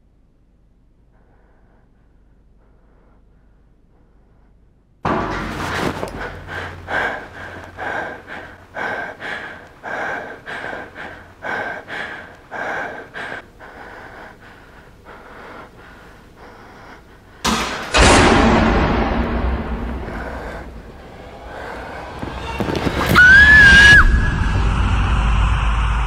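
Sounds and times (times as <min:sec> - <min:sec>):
person breathing heavily: 0:01.0 - 0:23.0
sudden loud hit: 0:05.0 - 0:08.4, 0:17.5 - 0:26.0.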